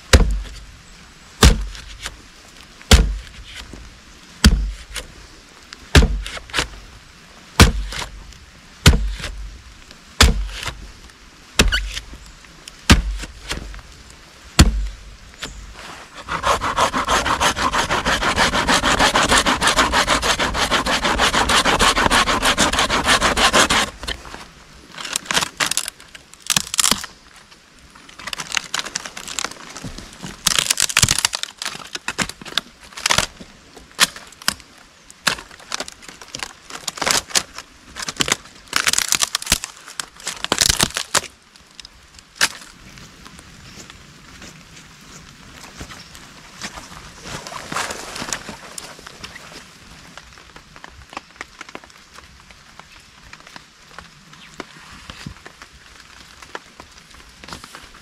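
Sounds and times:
dry wood cracking and splintering: 0:00.1 - 0:00.6, 0:01.4 - 0:02.2, 0:02.9 - 0:03.8, 0:05.9 - 0:06.7, 0:07.6 - 0:08.2, 0:08.8 - 0:09.5, 0:10.2 - 0:10.8, 0:11.6 - 0:43.4, 0:46.6 - 0:58.0
hand saw cutting wood: 0:16.1 - 0:24.0.

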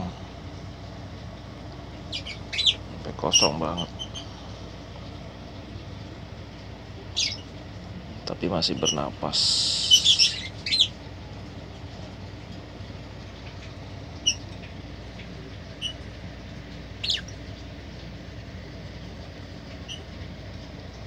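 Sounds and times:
steady low hum: 0:00.0 - 0:21.0
high bird chirps: 0:02.0 - 0:04.4, 0:07.1 - 0:07.6, 0:09.6 - 0:11.0, 0:14.2 - 0:14.7, 0:15.7 - 0:16.0, 0:17.0 - 0:17.4, 0:19.8 - 0:20.1.

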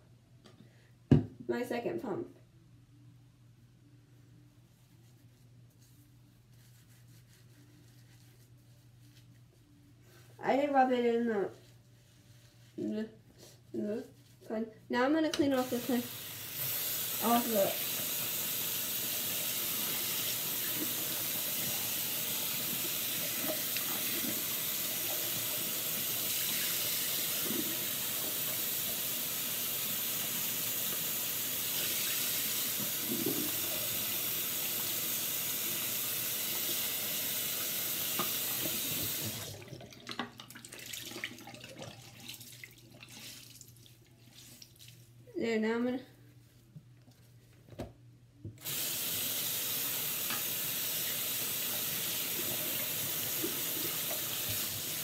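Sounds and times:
tap water running into sink: 0:15.6 - 0:43.2, 0:48.6 - 0:55.0.

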